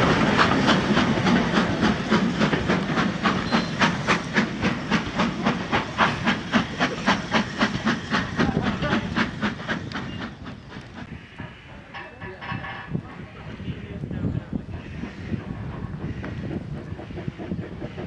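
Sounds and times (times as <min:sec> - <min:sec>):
steam locomotive exhaust chuffing: 0:00.0 - 0:18.0.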